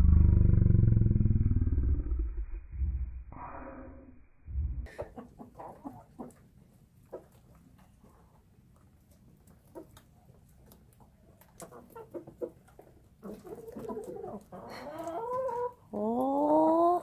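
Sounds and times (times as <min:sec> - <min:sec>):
hens clucking: 0:04.9 - 0:08.4, 0:09.1 - 0:17.0
hens pecking: 0:04.9 - 0:17.0.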